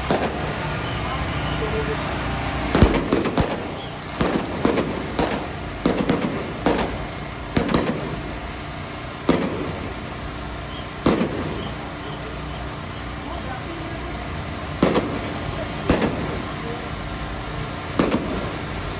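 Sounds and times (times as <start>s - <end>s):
firecracker bangs: 0.0s - 12.8s, 14.7s - 16.8s, 17.8s - 18.9s.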